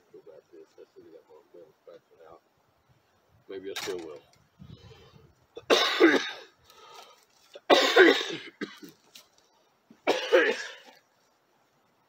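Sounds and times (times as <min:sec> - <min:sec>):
person coughing: 0:05.6 - 0:06.5, 0:07.6 - 0:08.9, 0:10.1 - 0:10.9.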